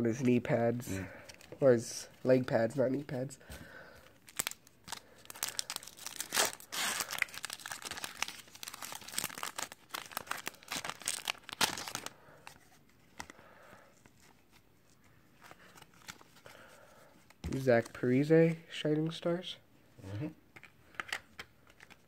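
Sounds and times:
foil pack tearing and crinkling: 4.3s - 12.1s.

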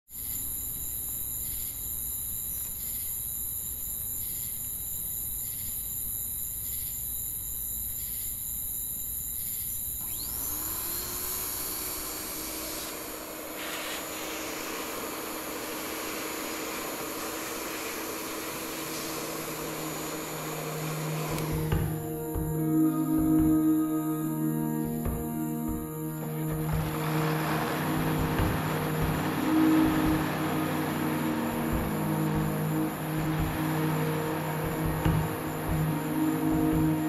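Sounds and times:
night insects chirping: 0.1s - 37.0s
machine whine and drone: 9.8s - 37.0s.

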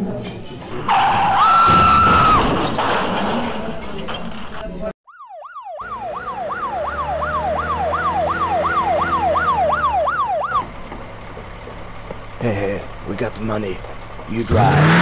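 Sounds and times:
police siren yelping: 5.1s - 10.7s.

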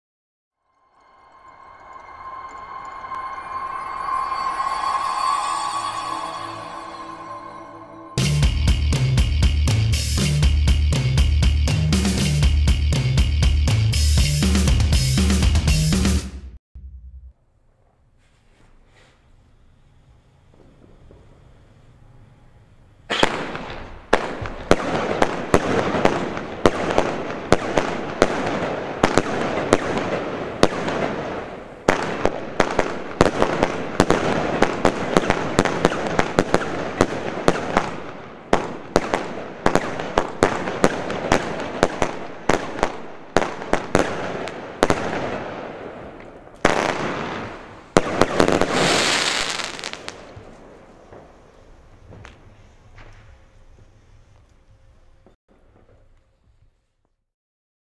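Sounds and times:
crackling hiss of fireworks: 18.2s - 57.0s
fireworks launching and bursting: 23.1s - 53.4s.

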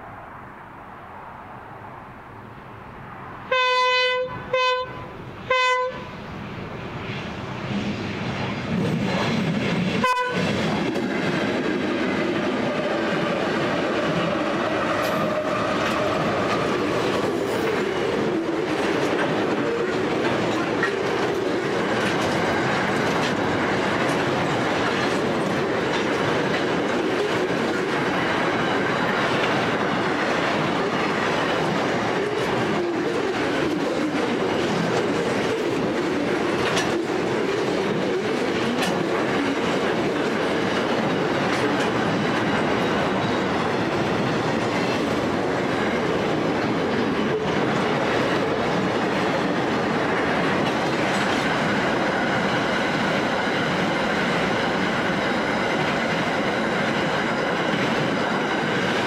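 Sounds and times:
train horn blasts: 3.5s - 6.1s, 10.0s - 10.5s
train wheels clattering: 7.8s - 59.0s.

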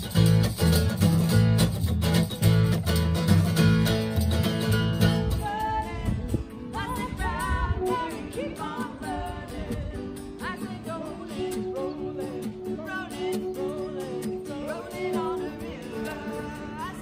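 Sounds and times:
acoustic guitar: 0.0s - 17.0s
woman singing: 5.3s - 17.0s.

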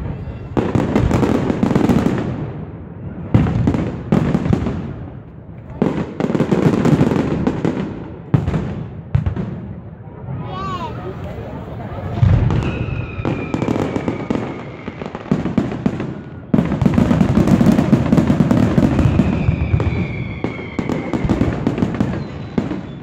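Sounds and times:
fireworks crackling and popping: 0.0s - 23.0s
heavy fireworks bangs: 0.0s - 23.0s
falling firework whistle: 11.1s - 17.6s, 18.6s - 23.0s.

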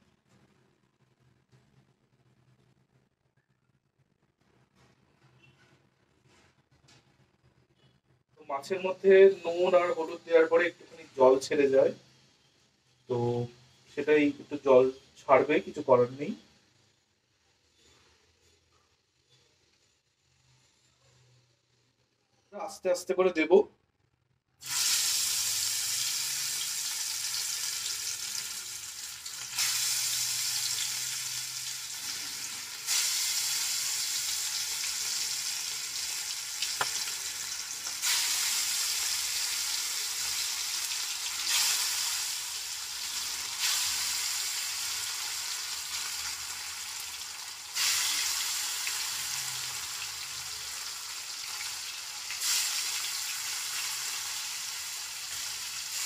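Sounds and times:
fish sizzling in hot oil: 24.6s - 56.0s.

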